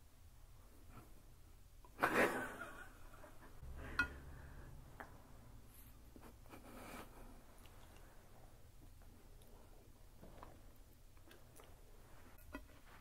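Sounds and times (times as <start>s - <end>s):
low hum: 3.4s - 6.7s.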